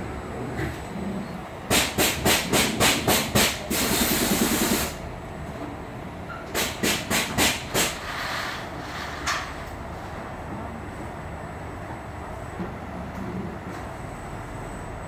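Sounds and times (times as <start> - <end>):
steady machine rumble: 0.0 - 6.4
pneumatic gripper air hisses: 1.7 - 5.0, 6.6 - 9.5.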